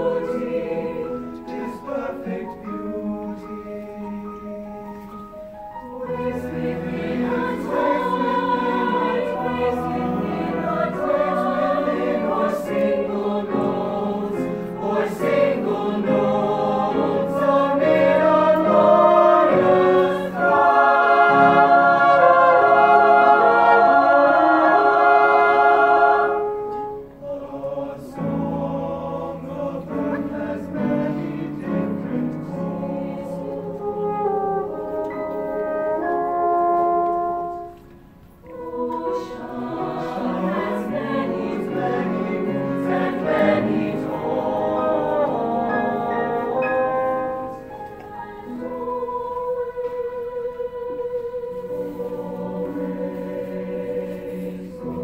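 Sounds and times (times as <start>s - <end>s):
mixed choir singing: 0.0s - 36.4s, 38.4s - 55.0s
piano: 0.0s - 55.0s
french horn: 5.9s - 27.8s, 29.6s - 49.2s.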